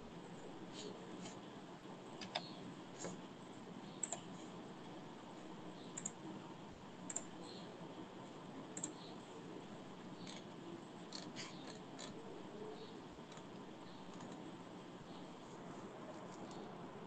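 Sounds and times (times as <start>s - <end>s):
faint room hum: 0.0s - 17.0s
computer mouse clicking: 2.2s - 3.2s, 3.9s - 4.3s, 5.9s - 6.2s, 7.1s - 7.3s, 8.8s - 9.0s, 10.2s - 10.5s, 11.1s - 12.2s, 13.2s - 14.4s.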